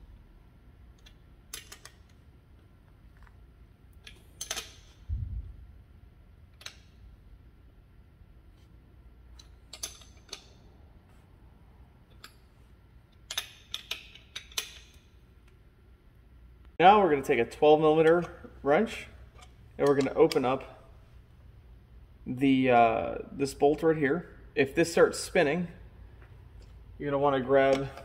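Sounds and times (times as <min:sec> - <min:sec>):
wrench clicking on nuts: 0:04.0 - 0:05.0, 0:13.2 - 0:15.0.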